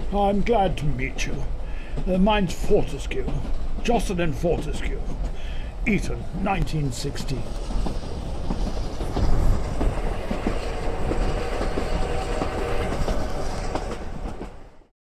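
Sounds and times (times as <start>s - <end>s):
wheels clicking on track: 0.0s - 14.6s
passenger train rumble: 0.0s - 14.9s.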